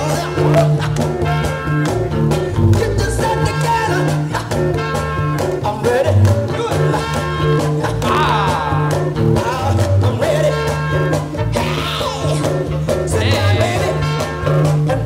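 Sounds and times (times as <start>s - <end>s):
upbeat dance music: 13.1s - 14.3s.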